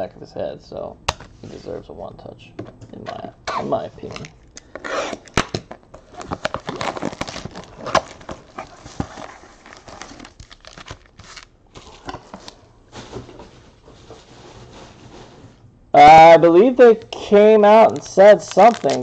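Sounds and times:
foil packs crinkling: 0:06.0 - 0:13.2, 0:17.8 - 0:19.0.

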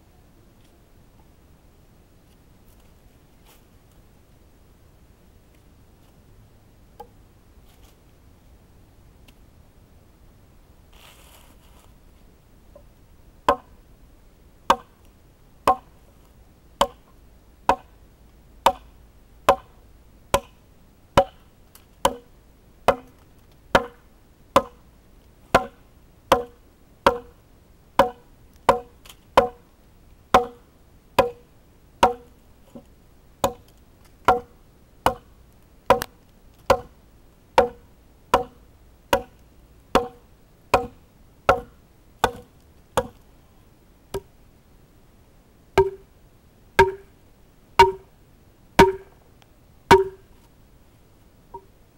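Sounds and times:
hatchet chopping log: 0:14.7 - 0:14.9, 0:16.8 - 0:17.0, 0:17.7 - 0:17.9, 0:18.6 - 0:18.8, 0:19.5 - 0:19.7, 0:20.3 - 0:20.5, 0:21.2 - 0:21.4, 0:22.0 - 0:22.3, 0:22.9 - 0:23.2, 0:23.8 - 0:24.0, 0:24.6 - 0:24.8, 0:25.5 - 0:27.3, 0:28.0 - 0:29.6, 0:30.3 - 0:30.6, 0:31.2 - 0:31.4, 0:32.0 - 0:32.3, 0:33.4 - 0:33.7, 0:34.3 - 0:35.3, 0:35.9 - 0:36.1, 0:36.7 - 0:36.9, 0:37.6 - 0:39.4, 0:40.0 - 0:43.2, 0:45.8 - 0:46.0, 0:46.8 - 0:47.1, 0:47.8 - 0:48.1, 0:48.8 - 0:49.1, 0:49.9 - 0:50.2.

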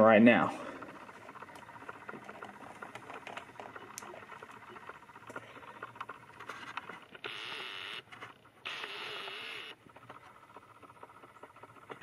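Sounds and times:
small motor whirring: 0:00.0 - 0:12.0
wavering whine: 0:00.0 - 0:12.0.

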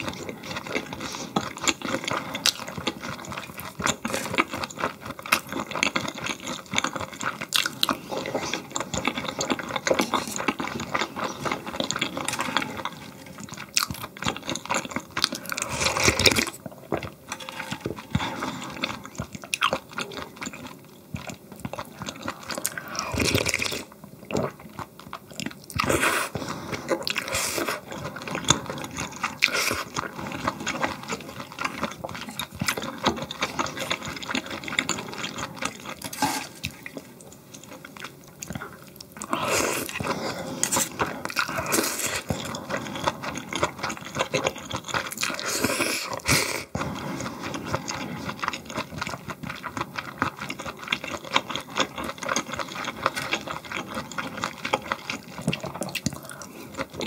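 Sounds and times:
chewing and biting: 0:00.0 - 0:57.0
slurping: 0:25.4 - 0:57.0.

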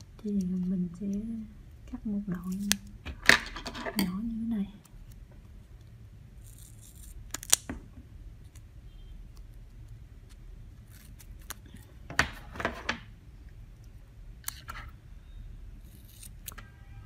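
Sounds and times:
scissors snipping tape: 0:06.4 - 0:07.7, 0:14.4 - 0:14.7.

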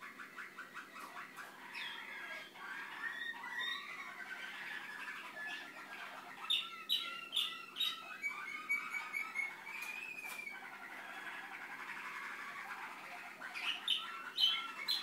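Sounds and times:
canary singing: 0:00.0 - 0:15.0.

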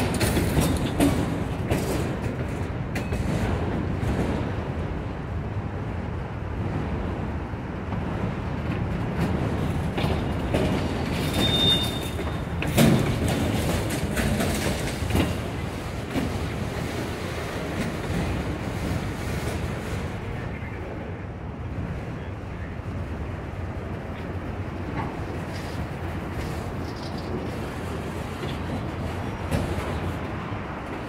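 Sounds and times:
train cars clanking: 0:00.0 - 0:31.0
train wheels rumbling on rail: 0:00.0 - 0:31.0
high wheel squeal: 0:11.2 - 0:12.4.

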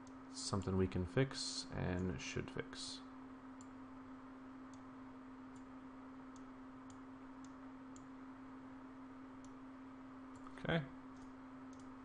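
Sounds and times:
low steady hum: 0:00.0 - 0:12.0
computer mouse clicks: 0:03.6 - 0:03.8, 0:06.3 - 0:08.1, 0:10.3 - 0:12.0.

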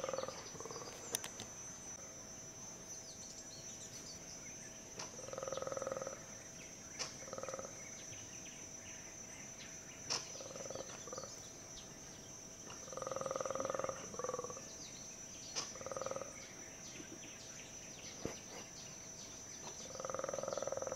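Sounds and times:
monkeys giving croaking roar calls: 0:00.0 - 0:01.0, 0:12.7 - 0:14.6, 0:19.8 - 0:20.9
high insect whine: 0:00.0 - 0:20.9.

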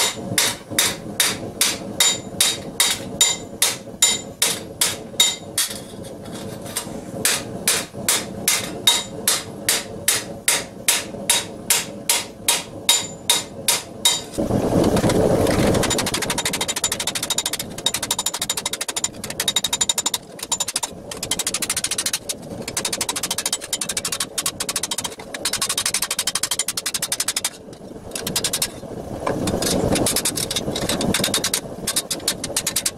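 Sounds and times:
hammer ringing on steel: 0:07.7 - 0:14.3
fast rattle: 0:14.3 - 0:32.9.

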